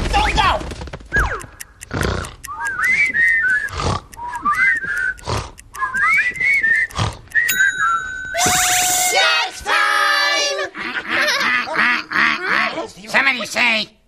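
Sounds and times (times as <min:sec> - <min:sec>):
cartoon snoring with whistling chirps: 0:01.1 - 0:07.5
steady high whistle tone: 0:05.8 - 0:09.9.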